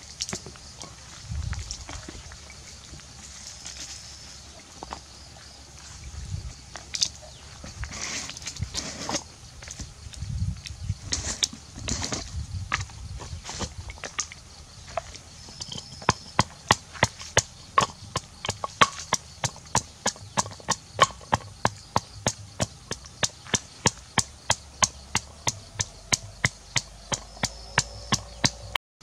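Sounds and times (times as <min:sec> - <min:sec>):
pestle pounding in wooden mortar: 0:15.5 - 0:28.8.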